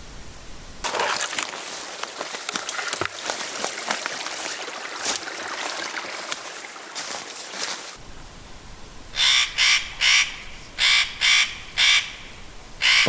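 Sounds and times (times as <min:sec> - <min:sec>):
footsteps through dry grass: 0:00.8 - 0:08.0
twigs crackling: 0:00.8 - 0:08.0.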